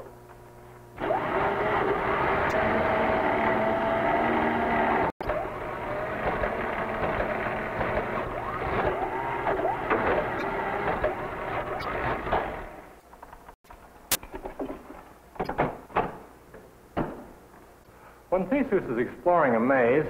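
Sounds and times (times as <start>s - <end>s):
electric motors whirring: 0.8s - 13.0s.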